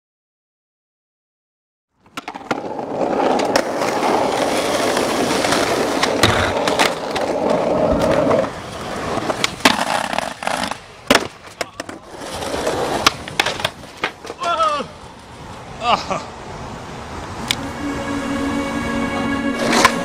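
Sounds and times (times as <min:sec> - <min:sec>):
skateboard wheels rolling on concrete: 0:01.9 - 0:20.0
skateboard clacks: 0:02.0 - 0:14.8.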